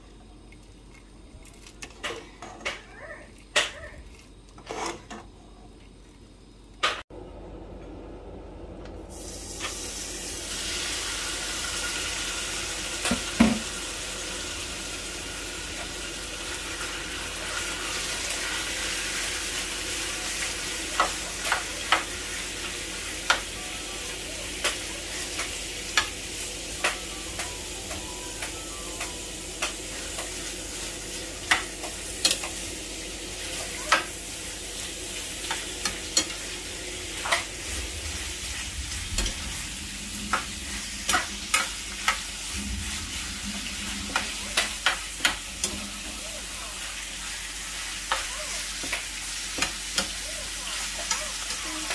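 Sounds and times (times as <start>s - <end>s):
metal spoon scraping a pan: 4.6s - 5.2s
pork sizzling in a frying pan: 9.1s - 51.9s.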